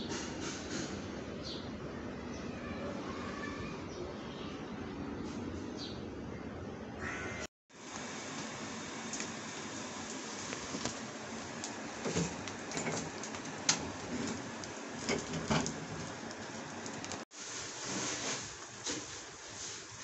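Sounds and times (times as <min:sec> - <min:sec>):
gas burner flame hissing: 0:00.0 - 0:01.3, 0:07.7 - 0:20.0
pot bubbling at the boil: 0:07.7 - 0:20.0
crackles and knocks: 0:07.9 - 0:20.0.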